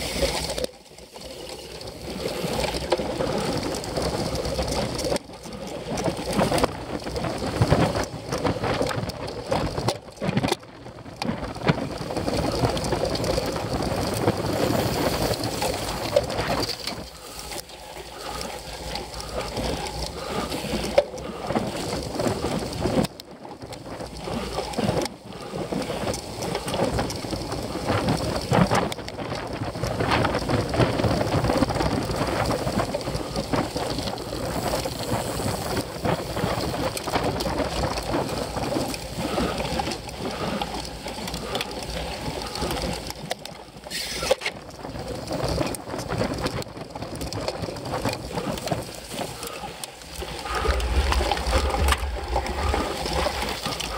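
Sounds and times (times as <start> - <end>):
bike rumbling over grass: 0.0 - 53.9
wind buffeting: 6.1 - 23.0, 44.7 - 53.9.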